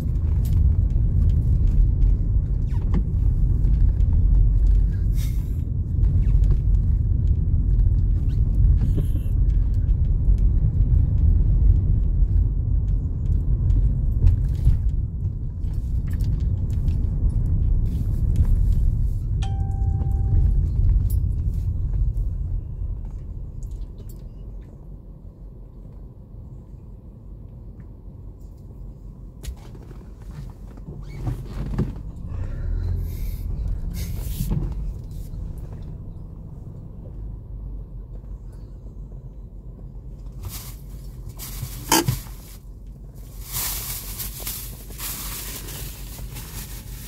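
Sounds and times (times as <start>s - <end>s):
car road noise rumble: 0.0s - 47.0s
short beep: 19.4s - 20.6s.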